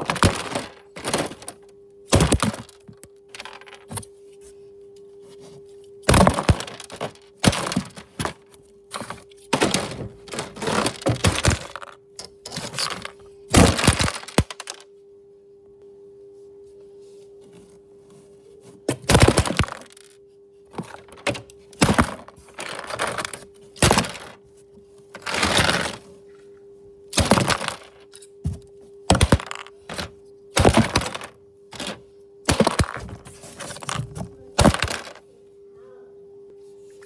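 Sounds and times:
plastic bricks clattering: 0.0 - 4.0, 6.1 - 8.4, 9.0 - 14.8, 19.1 - 24.4, 25.2 - 26.0, 27.2 - 28.1, 29.1 - 35.2.

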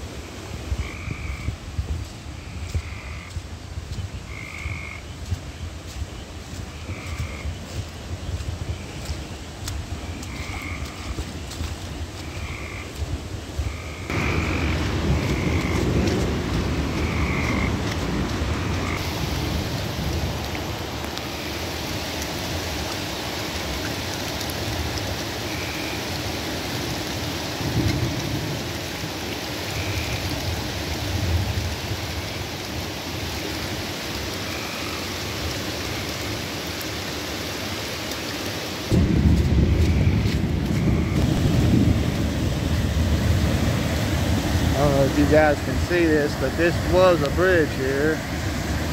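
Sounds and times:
rushing creek water: 0.0 - 48.9
frogs calling: 0.3 - 1.6, 2.3 - 21.9, 23.3 - 27.9, 28.7 - 31.1, 31.7 - 41.6.

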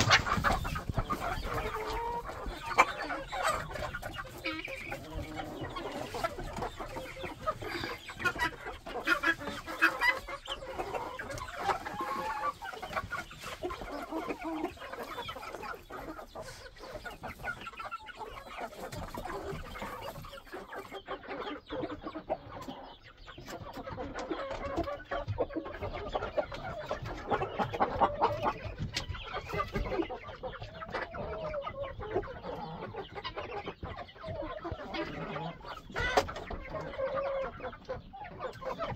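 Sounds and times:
hens and roosters clucking: 0.0 - 38.9.

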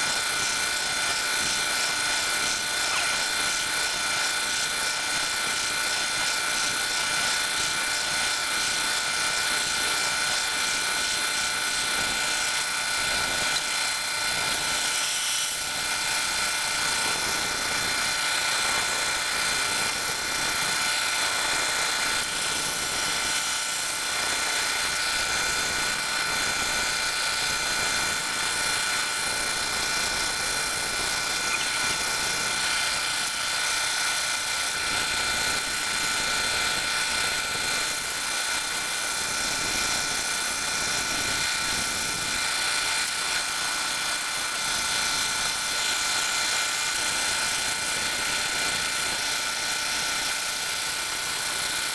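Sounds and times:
laser cutter whirring hiss: 0.0 - 51.9
high-pitched whining tones: 31.4 - 32.1.

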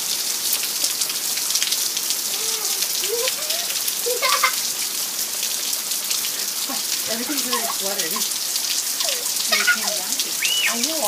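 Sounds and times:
heavy rain on concrete and puddles: 0.0 - 11.0.

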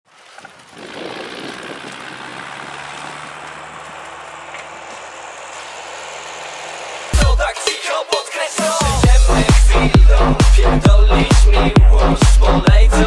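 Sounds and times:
tractor diesel engine running: 0.1 - 8.1
broad rushing noise: 0.5 - 7.3.

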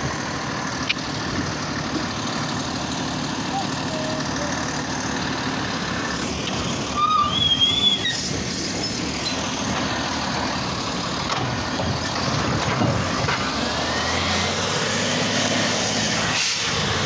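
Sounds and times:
garbage truck running: 0.0 - 17.0
high squealing: 6.5 - 9.5.

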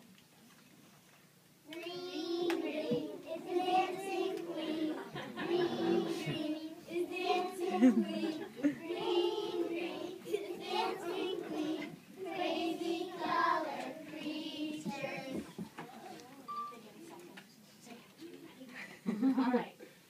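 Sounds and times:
young children singing in unison: 1.7 - 15.7.

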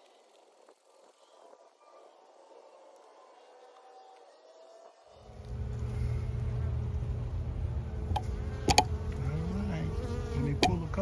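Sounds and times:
honey bees buzzing: 0.0 - 11.0.

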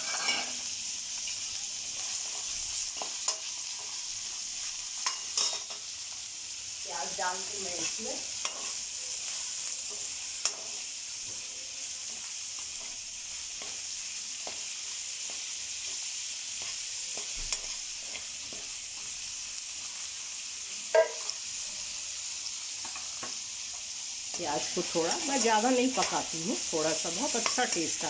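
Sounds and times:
spatula scraping a pan: 0.0 - 0.7, 7.7 - 19.2
onion sizzling in hot oil: 0.0 - 28.0
spatula knocking on pan: 20.9 - 21.2.

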